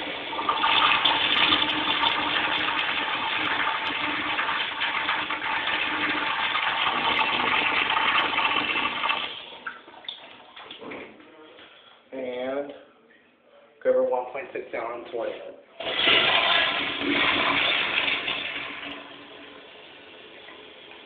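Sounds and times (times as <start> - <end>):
urinal flushing: 0.0 - 11.2, 15.8 - 21.0.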